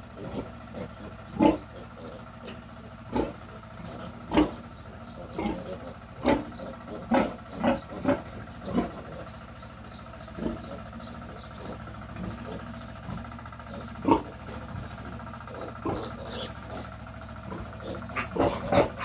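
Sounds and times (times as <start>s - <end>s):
piglet squealing: 15.9s - 16.6s, 17.9s - 19.0s.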